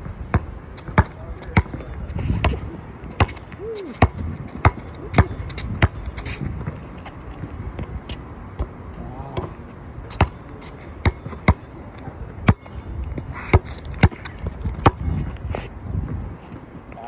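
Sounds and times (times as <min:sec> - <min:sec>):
basketball bouncing on court: 0:00.2 - 0:06.8, 0:11.0 - 0:11.7, 0:12.4 - 0:12.8, 0:13.5 - 0:15.1.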